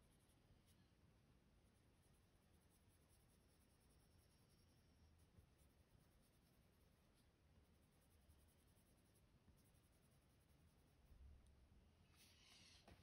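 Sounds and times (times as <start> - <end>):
pencil scratching on paper: 1.9 - 11.1.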